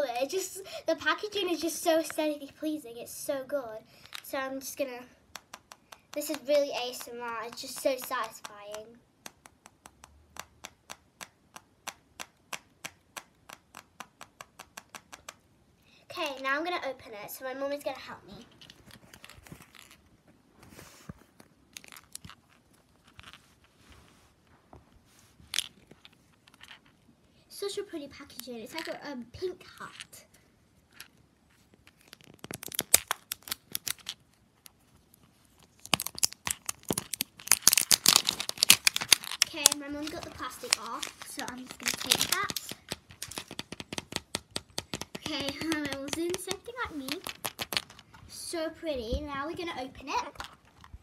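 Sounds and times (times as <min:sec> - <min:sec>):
plastic shrink wrap crinkling: 0:21.5 - 0:23.8, 0:30.9 - 0:48.2
fingers tapping on hard plastic: 0:41.8 - 0:47.9.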